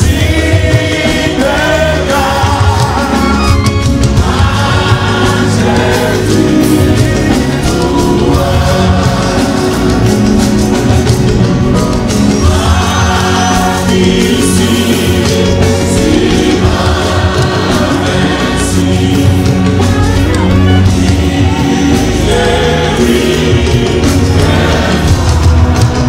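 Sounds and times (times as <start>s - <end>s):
congregation singing a hymn: 0.0s - 26.0s
instrumental accompaniment: 0.0s - 26.0s.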